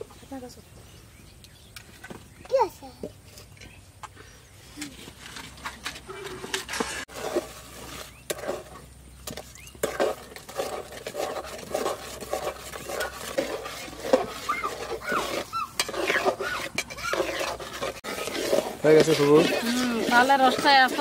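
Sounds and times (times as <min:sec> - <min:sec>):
metal spoon scraping a pot: 0:05.3 - 0:21.0.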